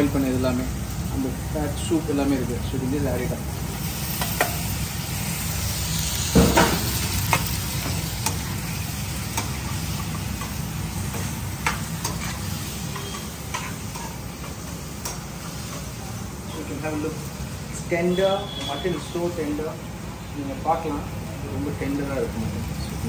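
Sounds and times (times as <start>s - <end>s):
food sizzling in a pan: 0.0s - 23.0s
metal spoon clinking against pan: 10.4s - 15.9s.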